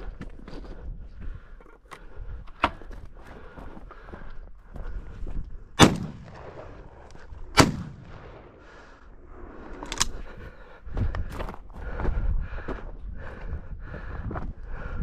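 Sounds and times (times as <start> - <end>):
shotgun shots: 5.8 - 6.8, 7.5 - 8.6.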